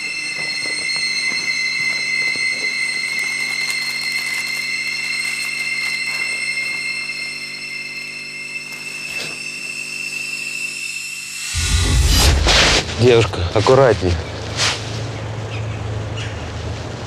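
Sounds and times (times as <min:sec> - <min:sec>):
high tones over low drone: 0:00.0 - 0:03.4, 0:04.7 - 0:14.5.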